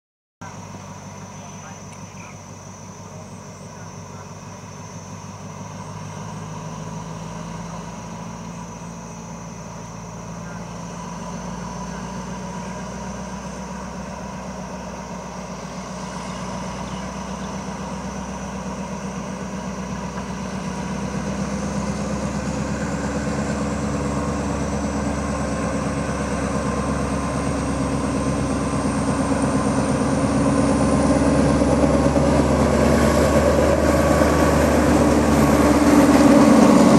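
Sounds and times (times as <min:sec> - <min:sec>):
faint high whine: 0:00.4 - 0:21.0
diesel locomotive engine: 0:00.4 - 0:36.9.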